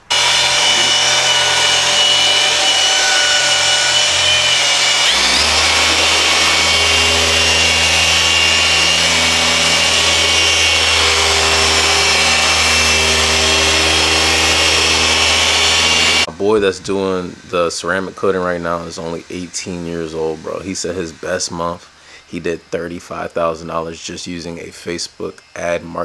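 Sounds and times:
car polisher motor whine: 0.0s - 16.3s
deeper steady hum: 0.0s - 22.0s.

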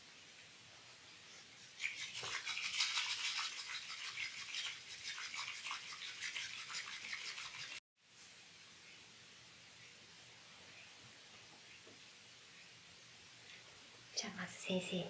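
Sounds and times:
tea whisk swishing in bowl: 1.4s - 7.8s.

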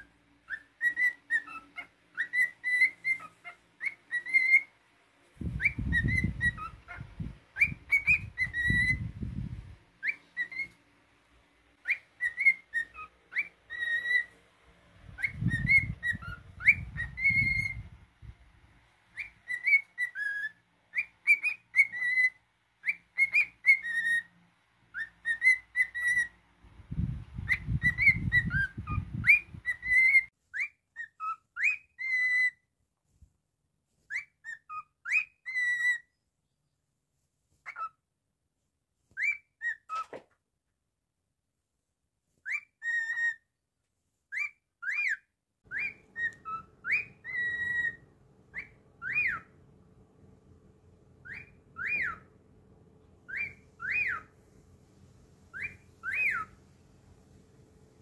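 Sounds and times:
cockatiel whistling a tune: 0.0s - 4.7s, 5.4s - 9.2s, 10.0s - 10.8s, 11.8s - 14.4s, 15.1s - 18.0s, 19.1s - 24.3s, 24.9s - 26.4s, 27.1s - 32.6s, 34.1s - 36.2s, 37.6s - 38.0s, 39.2s - 40.2s, 42.4s - 43.4s, 44.3s - 49.6s, 51.2s - 52.4s, 53.2s - 54.4s, 55.5s - 56.6s.

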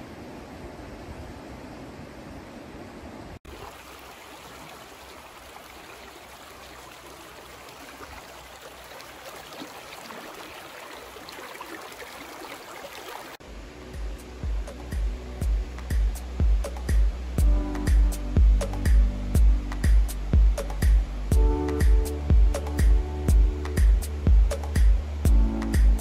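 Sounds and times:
wind by a river: 0.0s - 26.0s
creek water running over rocks: 3.5s - 13.4s.

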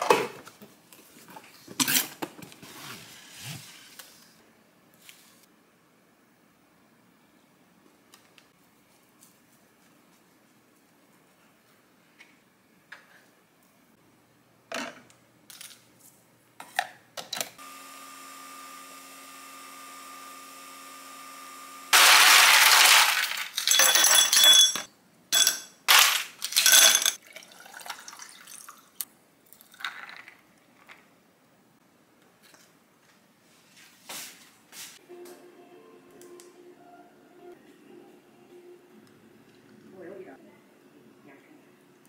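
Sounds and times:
coffee machine pump humming: 17.6s - 22.0s
rattling and clinking: 23.6s - 25.7s.

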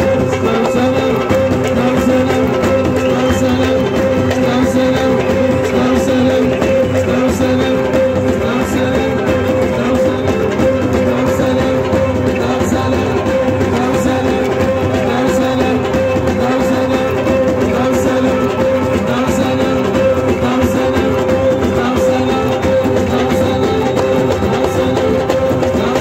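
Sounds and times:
crowd clapping along: 0.0s - 26.0s
hand drums beaten: 0.0s - 26.0s.

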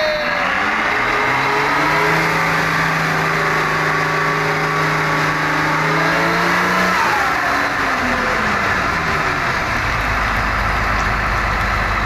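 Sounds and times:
bus diesel engine running: 0.0s - 12.0s.

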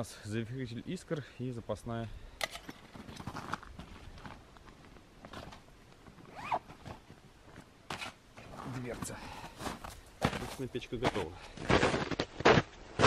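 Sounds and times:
nylon sack rustling: 6.2s - 7.0s.

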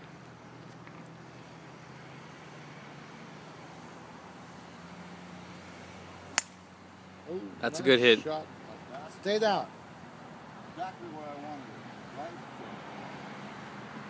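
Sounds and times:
distant road traffic rumble: 0.0s - 14.0s
golf club striking ball: 6.3s - 6.7s.

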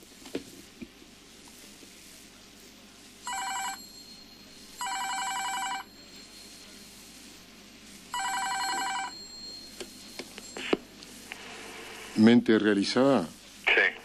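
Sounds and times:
electronic telephone ringing: 3.3s - 6.9s, 8.1s - 10.9s.

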